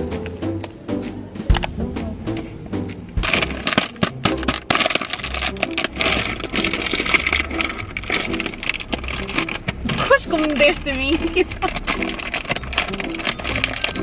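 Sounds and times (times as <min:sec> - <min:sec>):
plastic wrapper crinkling: 0:03.2 - 0:14.0.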